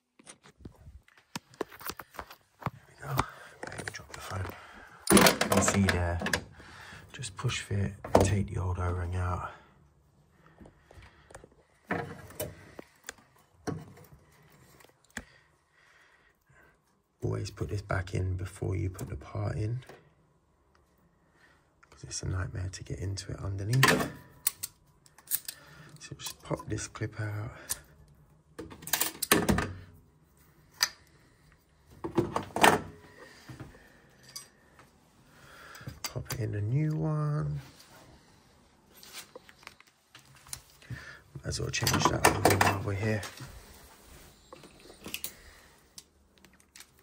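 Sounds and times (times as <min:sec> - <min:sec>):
clatter of pliers and parts: 0:05.0 - 0:06.4, 0:23.7 - 0:26.6, 0:28.6 - 0:29.7, 0:34.1 - 0:34.6.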